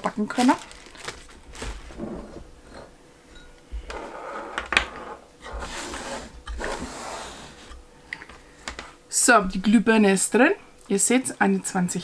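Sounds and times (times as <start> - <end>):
packaging rustling: 0.1 - 2.0.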